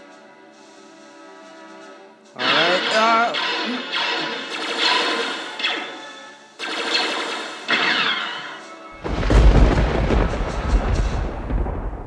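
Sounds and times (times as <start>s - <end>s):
background music: 0.0s - 12.0s
blaster shots: 2.4s - 8.6s
deep explosion rumble: 9.0s - 12.0s.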